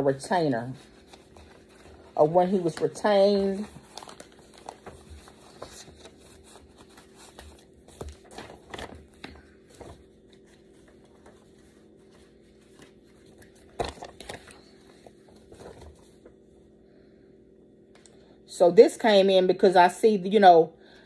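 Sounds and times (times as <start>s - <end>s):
paper rustling and shuffling: 0.0s - 16.6s.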